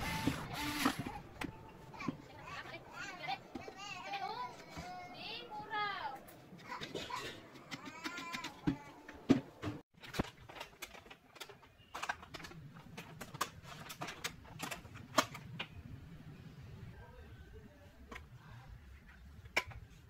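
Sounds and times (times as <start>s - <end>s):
wooden parts knocking and clicking: 10.0s - 15.8s.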